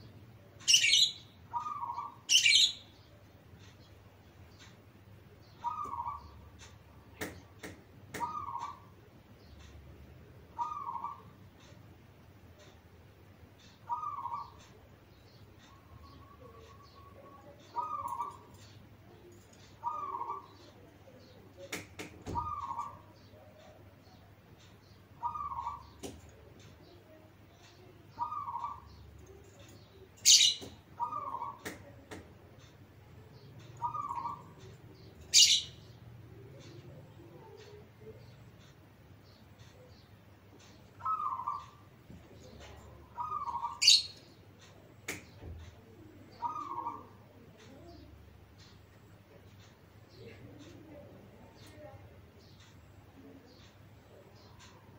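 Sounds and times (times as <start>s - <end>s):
dove cooing: 5.6s - 6.3s, 8.2s - 8.9s, 10.6s - 11.3s, 13.9s - 14.6s, 16.0s - 18.6s, 19.8s - 20.6s, 22.3s - 23.1s, 25.2s - 26.0s, 28.2s - 28.9s, 30.2s - 31.6s, 33.8s - 34.5s, 41.0s - 41.8s, 43.1s - 44.1s, 45.8s - 48.0s
sharp clicks: 21.6s - 22.9s.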